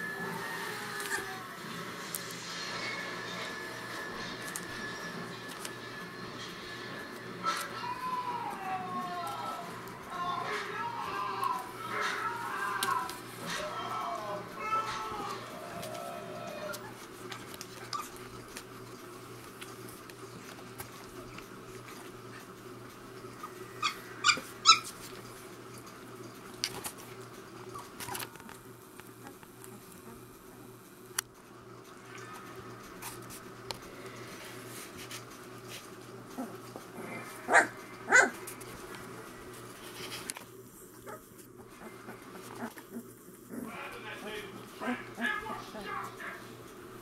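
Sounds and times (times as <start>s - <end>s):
puppies crying: 7.5s - 18.5s, 23.4s - 25.0s.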